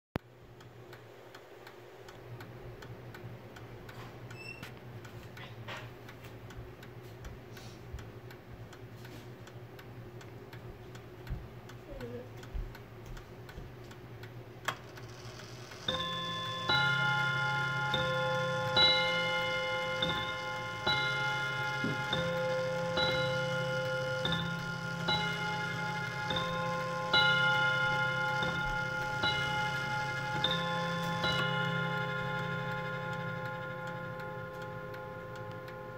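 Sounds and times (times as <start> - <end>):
clock ticking: 0.2 - 35.9
clock striking: 13.7 - 35.9.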